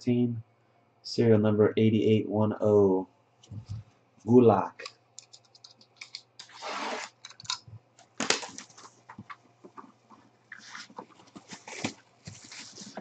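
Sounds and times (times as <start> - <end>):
plastic crinkling: 6.1 - 13.0
box cutter slitting plastic wrap: 6.4 - 7.2.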